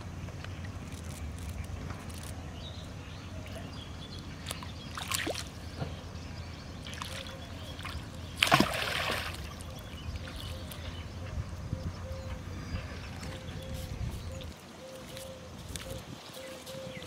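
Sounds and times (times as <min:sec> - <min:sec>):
hook splashing into water: 0:06.9 - 0:09.5
steady low rumble: 0:09.4 - 0:17.0.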